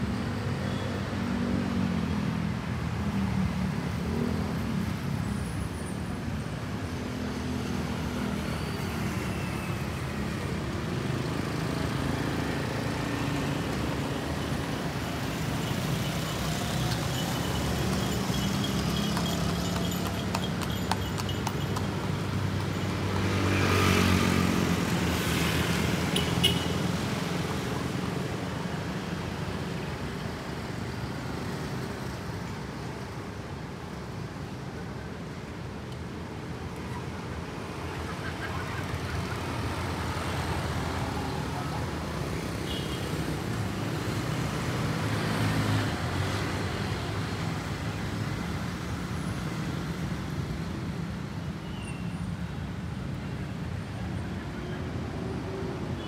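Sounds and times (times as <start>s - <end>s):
traffic hum: 0.0s - 56.0s.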